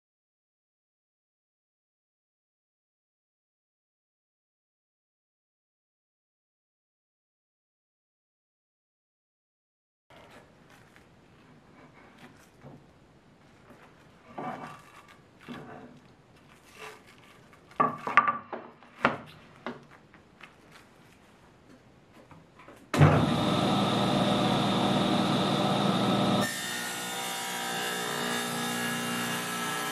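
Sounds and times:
table saw running: 0:23.0 - 0:29.9.

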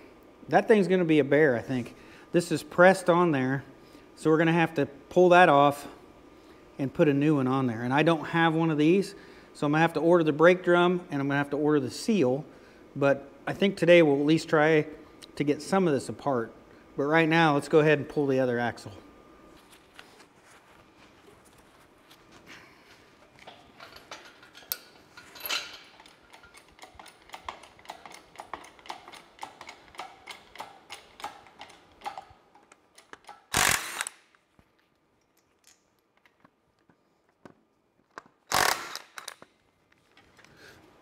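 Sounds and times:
ratchet wrench clicking: 0:25.9 - 0:32.3, 0:33.0 - 0:34.2, 0:38.5 - 0:39.4.

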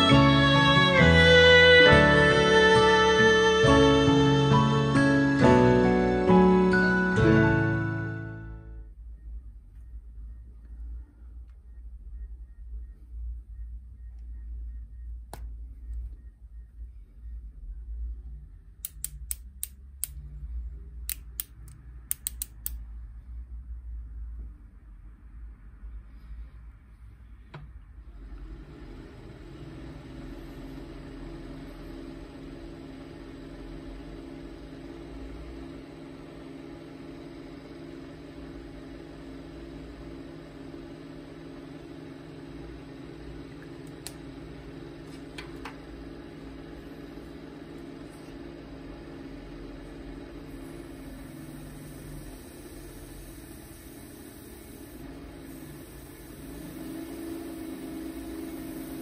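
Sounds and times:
electric motor humming: 0:49.2 - 0:59.0.

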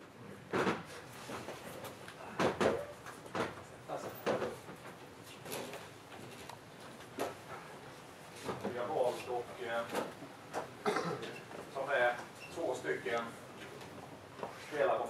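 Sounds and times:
footsteps and knocks: 0:00.5 - 0:07.7.

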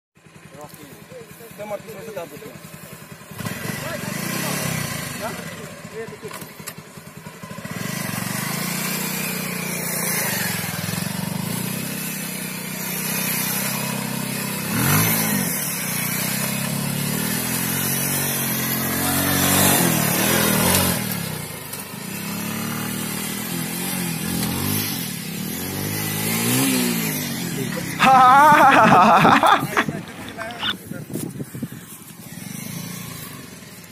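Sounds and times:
motorcycle engine revving: 0:00.2 - 0:33.9
loud wavering voice: 0:27.9 - 0:30.9.

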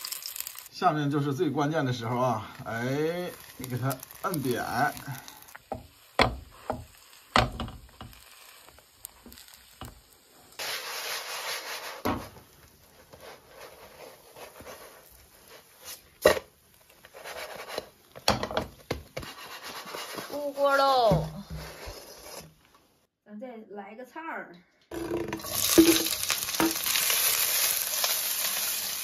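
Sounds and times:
buns sizzling in oil: 0:00.0 - 0:22.6, 0:24.9 - 0:29.0
spatula knocking on pan: 0:05.7 - 0:07.8.

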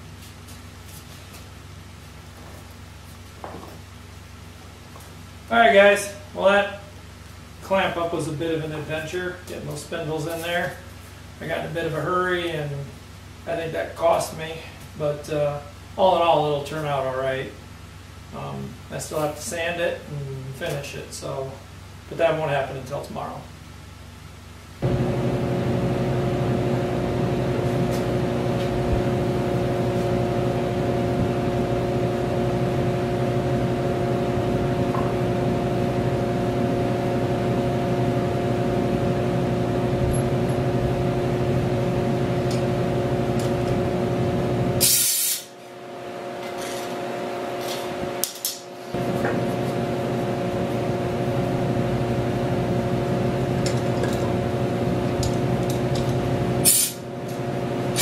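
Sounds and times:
machine hum: 0:23.5 - 0:58.0
short loud hiss: 0:44.8 - 0:45.6, 0:56.6 - 0:57.0.

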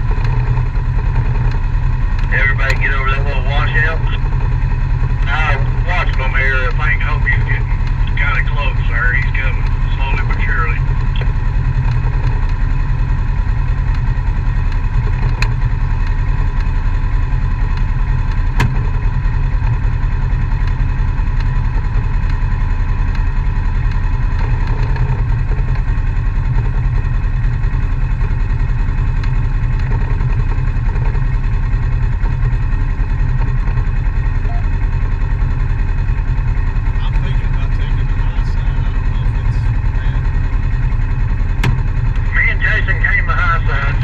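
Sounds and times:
engine idling with low rumble: 0:00.0 - 0:44.0.

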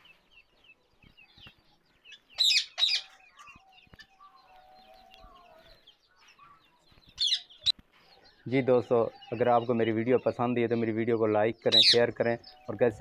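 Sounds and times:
faint bird chatter: 0:00.0 - 0:13.0
parakeet shrill calls: 0:02.4 - 0:03.2.

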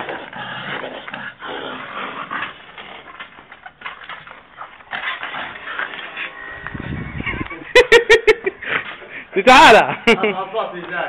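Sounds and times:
paws scrabbling on dirt: 0:00.0 - 0:06.9.

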